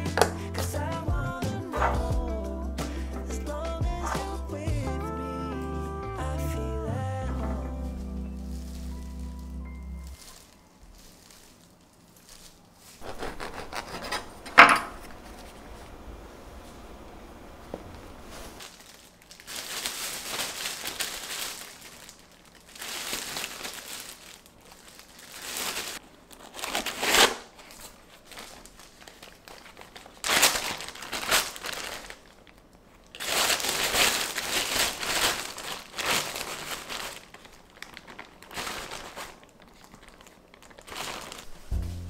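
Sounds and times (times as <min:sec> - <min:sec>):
plastic bags crinkling: 0:07.3 - 0:15.8, 0:18.0 - 0:41.8.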